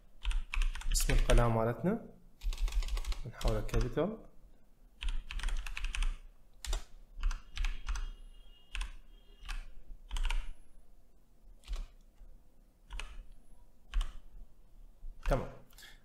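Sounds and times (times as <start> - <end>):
keyboard typing clicks: 2.4 - 4.0, 5.0 - 8.1, 8.7 - 10.5, 11.6 - 12.1, 12.9 - 14.2.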